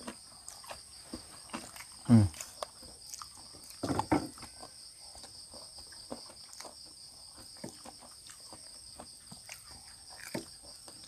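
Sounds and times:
insects trilling: 0:00.0 - 0:11.0
person eating clicks: 0:01.5 - 0:03.8.

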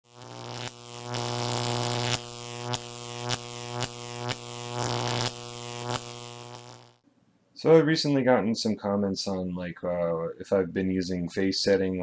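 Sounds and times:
electrical buzzing hum: 0:00.0 - 0:07.0.

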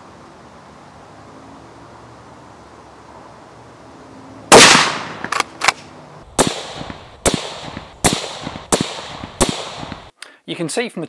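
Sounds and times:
suppressed rifle shot: 0:04.5 - 0:05.8, 0:06.4 - 0:10.1
short sharp cracks: 0:04.5 - 0:10.1.

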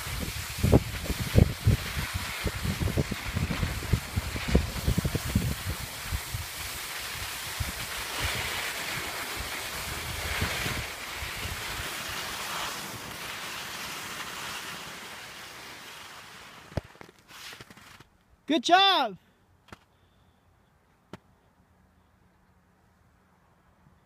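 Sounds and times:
wind rushing over microphone: 0:00.0 - 0:13.3
skis sliding over snow: 0:00.0 - 0:18.1.

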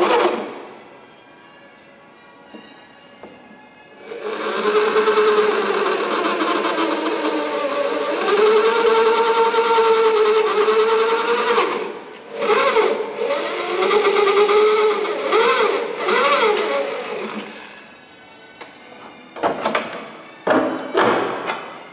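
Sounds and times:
drill drilling into steel: 0:04.1 - 0:17.8.

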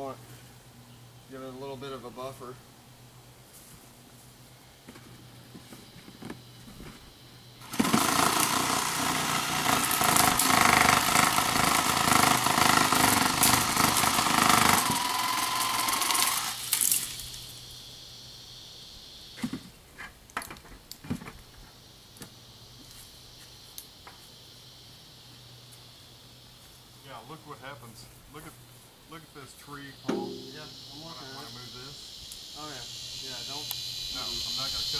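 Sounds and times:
power saw cutting wood: 0:07.6 - 0:16.7
sharp knocks: 0:30.1 - 0:30.7.

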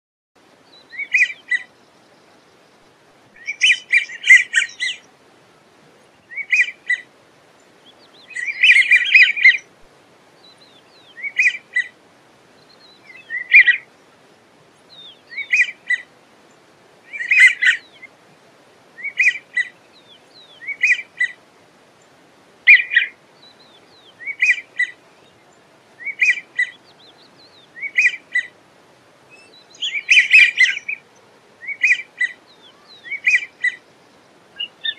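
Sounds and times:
ducks whistled calls: 0:00.8 - 0:01.7, 0:03.4 - 0:05.1, 0:06.3 - 0:07.1, 0:08.2 - 0:09.7, 0:11.1 - 0:11.9, 0:13.1 - 0:13.9, 0:15.3 - 0:16.1, 0:17.1 - 0:18.1, 0:19.0 - 0:19.8, 0:20.6 - 0:21.4, 0:22.7 - 0:23.2, 0:24.1 - 0:25.0, 0:26.0 - 0:26.8, 0:27.8 - 0:28.5, 0:29.4 - 0:31.0, 0:31.6 - 0:33.8, 0:34.6 - 0:34.9.

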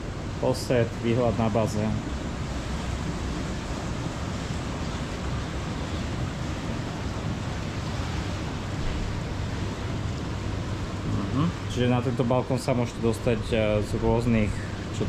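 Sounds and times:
water jets splashing: 0:00.0 - 0:15.0.

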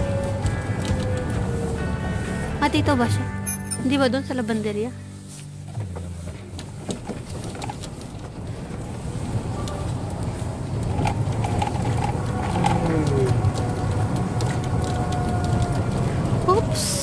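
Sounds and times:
golf cart tyres rumbling on stone: 0:00.0 - 0:03.2, 0:05.2 - 0:17.0
rattles and knocks: 0:05.6 - 0:09.5.

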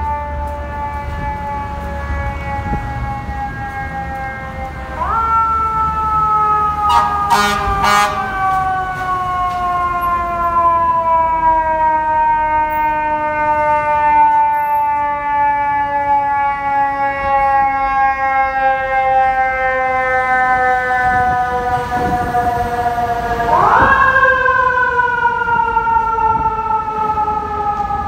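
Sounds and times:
short horn blasts: 0:06.9 - 0:08.4.

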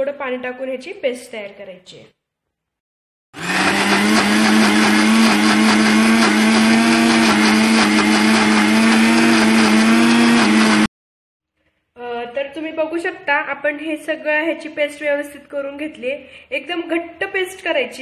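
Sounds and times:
mixer grinder humming: 0:03.4 - 0:10.9.

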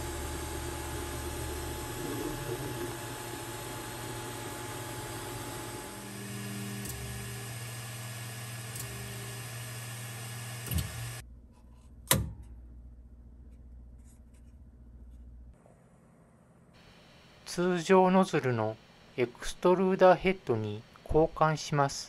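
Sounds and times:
three-d printer fans and motors whirring: 0:00.0 - 0:11.2
faint handling sounds: 0:13.4 - 0:15.7.

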